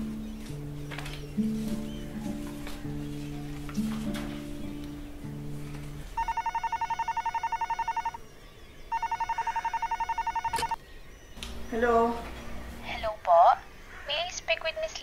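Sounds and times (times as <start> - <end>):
soft background music: 0.0 - 13.5
telephone ringing: 6.2 - 8.2, 8.9 - 10.8.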